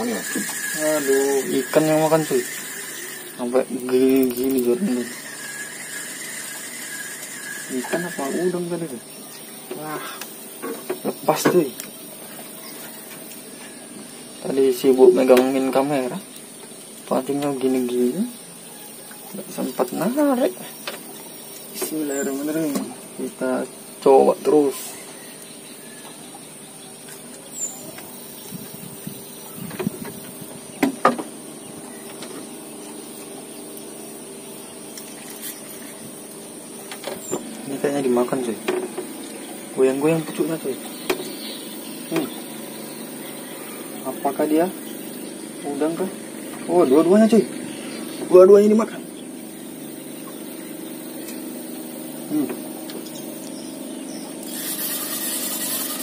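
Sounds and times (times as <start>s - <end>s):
steady engine hum: 19.3s - 56.0s.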